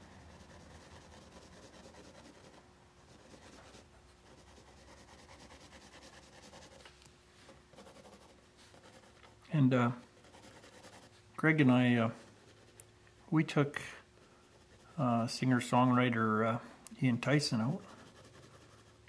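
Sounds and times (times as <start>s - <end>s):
faint steady hum: 0.0s - 19.0s
pencil shading on paper: 0.1s - 6.8s, 7.7s - 9.2s, 10.2s - 11.1s, 17.8s - 19.0s.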